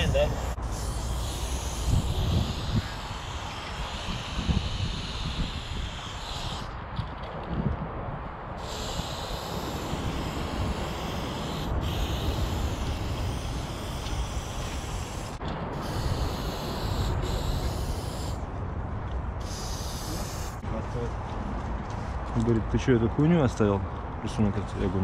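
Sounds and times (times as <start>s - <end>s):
aerosol spray can hissing: 0.0s - 6.7s, 8.6s - 18.4s, 19.4s - 20.6s.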